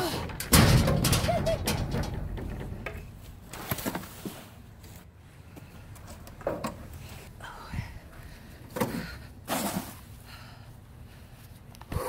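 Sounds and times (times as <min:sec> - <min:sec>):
pole knocking in steel dumpster: 0:00.3 - 0:03.4.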